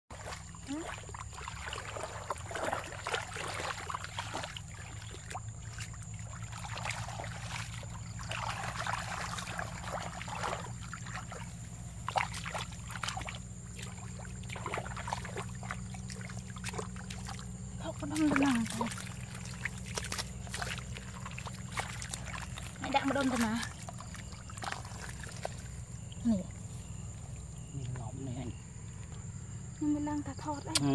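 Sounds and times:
wet squelches in mud: 0:00.1 - 0:28.0
muddy water sloshing and splashing: 0:00.1 - 0:30.9.

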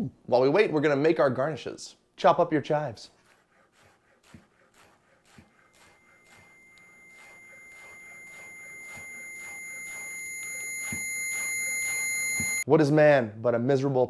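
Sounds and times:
high-pitched electronic tone: 0:05.7 - 0:12.6.

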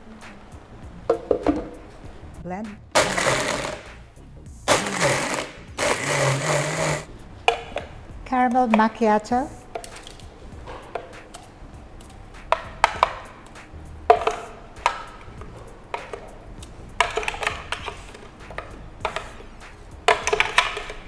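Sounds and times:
spoon scraping plastic blender jar: 0:03.0 - 0:03.9, 0:04.7 - 0:07.1.

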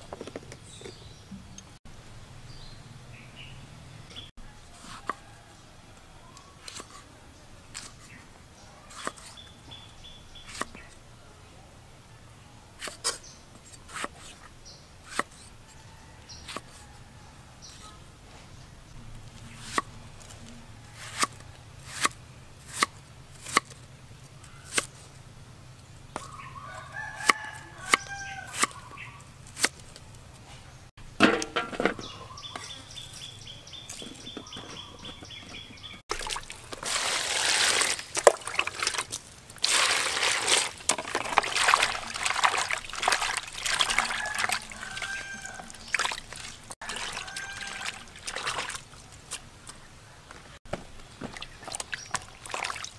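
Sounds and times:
chickens calling: 0:26.1 - 0:29.7, 0:30.6 - 0:49.1
water splashing in plastic basin: 0:36.1 - 0:49.2, 0:51.2 - 0:52.9.

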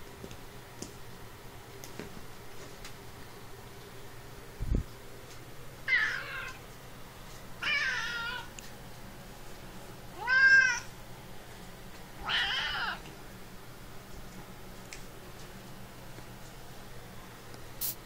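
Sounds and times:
cat meowing: 0:05.9 - 0:06.6, 0:07.6 - 0:08.5, 0:10.2 - 0:10.9, 0:12.2 - 0:13.0.

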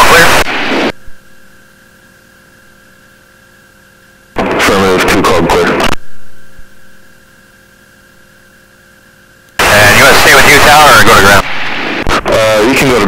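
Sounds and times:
garbled static radio transmission: 0:00.0 - 0:01.6, 0:04.2 - 0:07.3, 0:09.6 - 0:13.0
faint electrical hum: 0:00.0 - 0:13.0.

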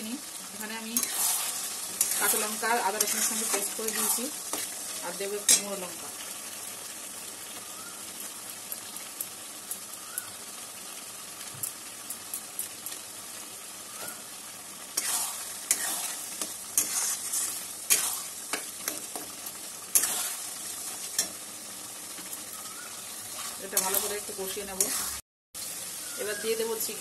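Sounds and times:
gravy sizzling in pan: 0:00.0 - 0:27.0
metal spatula scraping pan: 0:01.0 - 0:04.8, 0:15.0 - 0:19.3, 0:23.3 - 0:25.2.

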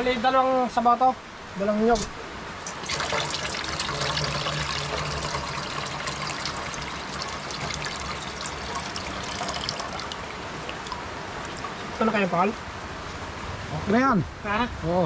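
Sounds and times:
liquid pouring and trickling: 0:02.7 - 0:12.3.

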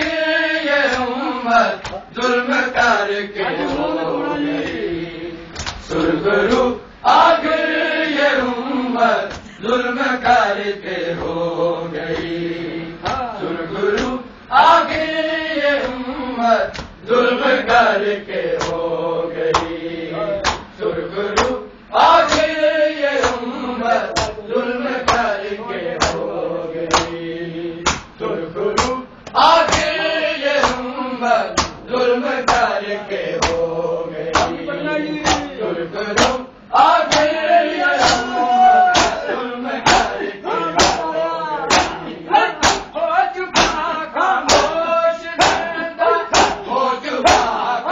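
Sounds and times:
men chanting a lament: 0:00.0 - 0:47.9
chest-beating slaps: 0:01.8 - 0:02.1, 0:05.6 - 0:06.6, 0:18.6 - 0:18.8, 0:19.5 - 0:19.8, 0:20.4 - 0:20.8, 0:21.4 - 0:21.6, 0:22.2 - 0:22.5, 0:23.2 - 0:23.4, 0:24.2 - 0:24.4, 0:25.1 - 0:25.3, 0:26.0 - 0:26.2, 0:26.9 - 0:27.2, 0:27.8 - 0:28.2, 0:28.8 - 0:30.0, 0:30.6 - 0:30.9, 0:31.6 - 0:31.8, 0:32.5 - 0:32.7, 0:33.4 - 0:33.6, 0:34.3 - 0:34.6, 0:35.2 - 0:35.5, 0:36.2 - 0:36.4, 0:37.1 - 0:37.3, 0:38.0 - 0:38.3, 0:38.9 - 0:40.2, 0:40.8 - 0:41.1, 0:41.7 - 0:43.0, 0:43.6 - 0:43.8, 0:44.5 - 0:44.7, 0:45.4 - 0:45.7, 0:46.3 - 0:46.7.

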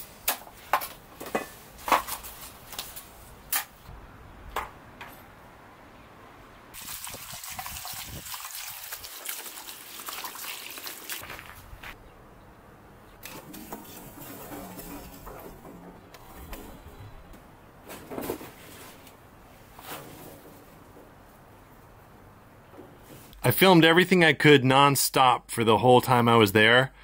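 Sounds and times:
water running into metal bowl: 0:06.8 - 0:11.2.

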